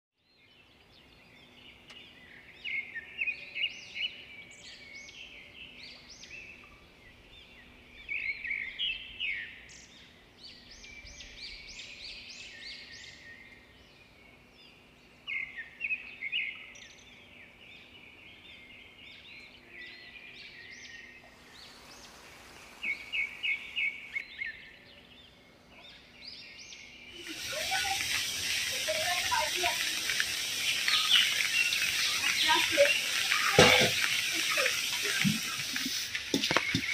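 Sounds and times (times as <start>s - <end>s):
birds chirping and trilling: 0.3s - 36.9s
steady hiss: 21.1s - 24.2s, 27.2s - 36.9s.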